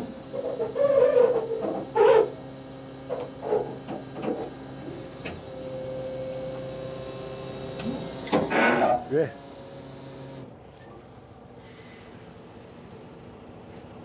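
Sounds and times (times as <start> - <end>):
diesel engine idling: 9.0 - 14.0.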